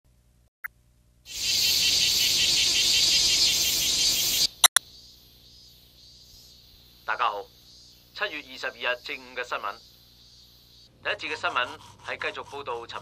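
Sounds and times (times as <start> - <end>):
dense insect chirring: 1.3 - 10.9
faint high insect hum: 1.3 - 12.8.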